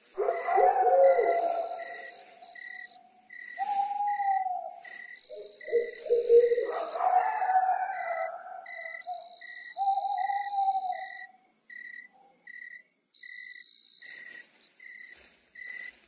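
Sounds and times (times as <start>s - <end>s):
owl hooting: 0.2s - 11.3s
cricket chirping: 0.2s - 16.0s
high insect trill: 0.3s - 16.0s.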